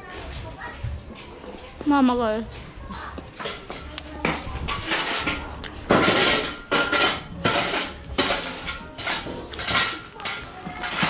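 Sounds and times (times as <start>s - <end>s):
hard objects clinking and clattering: 2.9s - 11.0s.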